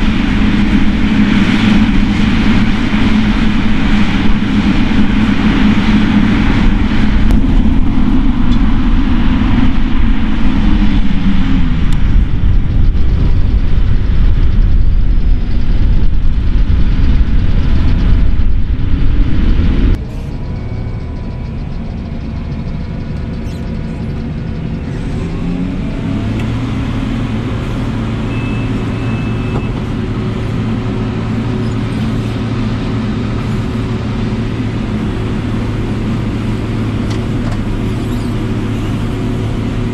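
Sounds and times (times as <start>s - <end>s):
steady low hum: 0.0s - 28.9s
farm machinery diesel engines: 0.0s - 39.9s.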